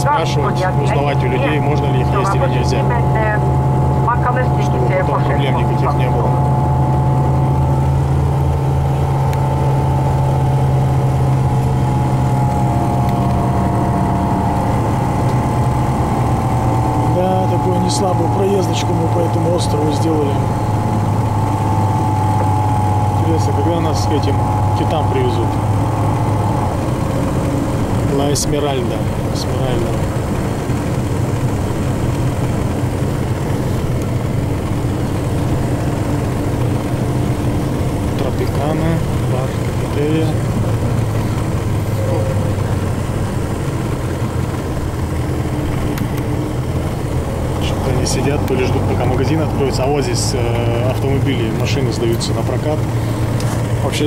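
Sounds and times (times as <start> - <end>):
faint steady higher tone: 0.0 - 30.0
bus engine hum: 0.0 - 54.0.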